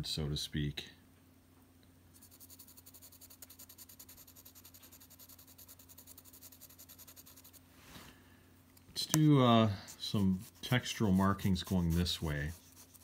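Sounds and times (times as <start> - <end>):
pencil scratching on paper: 2.2 - 7.6, 9.8 - 13.0.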